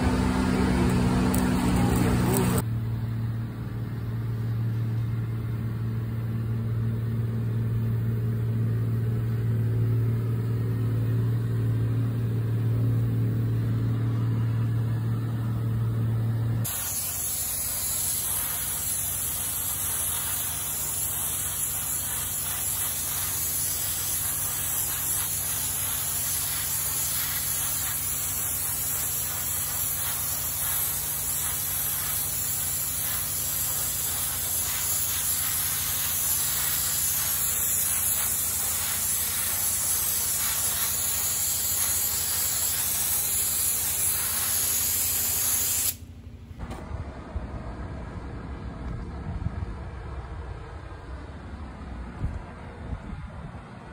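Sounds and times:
low hum: 0.0s - 20.6s, 46.0s - 53.9s
paint spray gun hissing: 16.6s - 46.1s.

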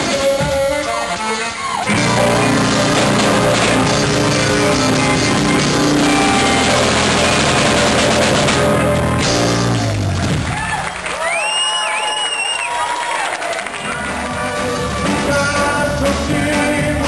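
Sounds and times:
live dance band playing: 0.0s - 11.1s, 13.7s - 17.0s.

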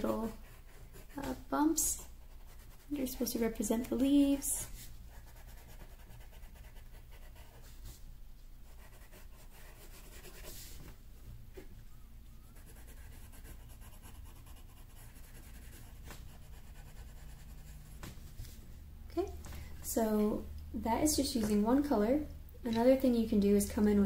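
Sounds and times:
pencil scratching on paper: 0.0s - 8.0s, 8.6s - 10.9s, 12.6s - 18.6s.

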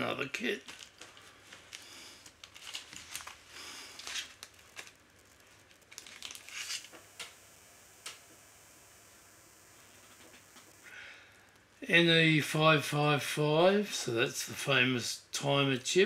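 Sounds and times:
plastic bag crinkling: 0.5s - 7.0s.

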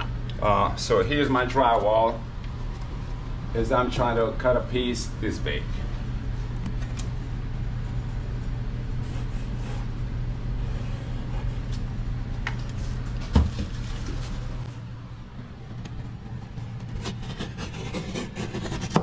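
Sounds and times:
steady low hum: 0.0s - 19.0s
pencil marking: 16.6s - 19.0s.

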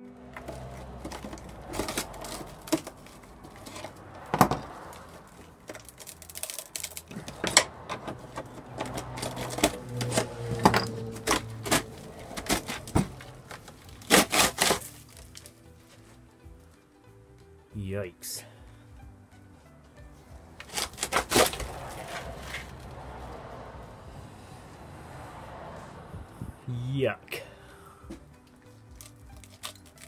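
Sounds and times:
metal clicks and knocks: 5.6s - 13.6s.

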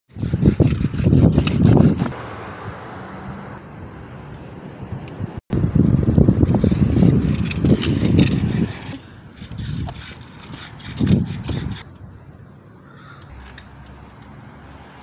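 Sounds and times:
scooter wheels rolling on concrete: 5.8s - 12.0s.

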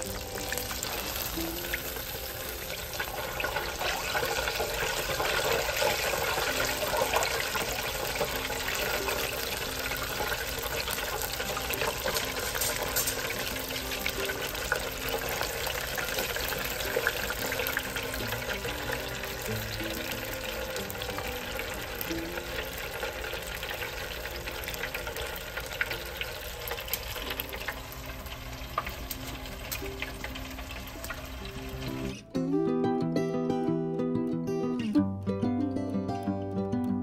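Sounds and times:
deep frying sizzle and crackle: 0.0s - 32.2s.

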